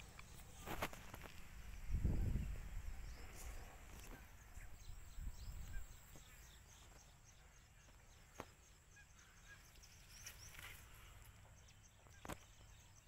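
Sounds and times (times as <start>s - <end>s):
light wind rumble: 0.0s - 6.7s.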